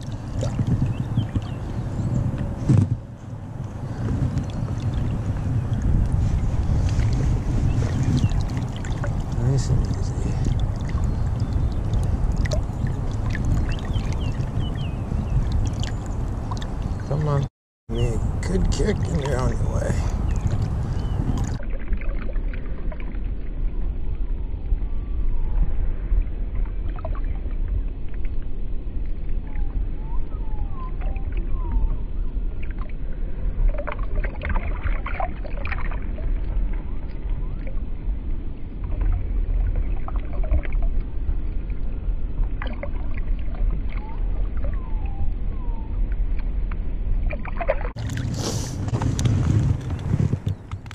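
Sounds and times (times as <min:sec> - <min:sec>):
low rumble: 0:00.0 - 0:50.9
muffled water sloshing and bubbling: 0:00.0 - 0:50.9
bright water rush: 0:03.7 - 0:21.6, 0:47.9 - 0:49.3.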